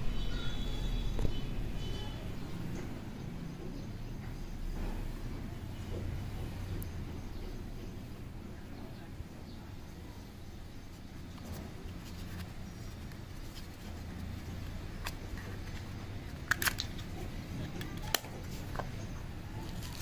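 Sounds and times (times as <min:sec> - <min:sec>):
plastic case clicking: 0:15.0 - 0:17.1.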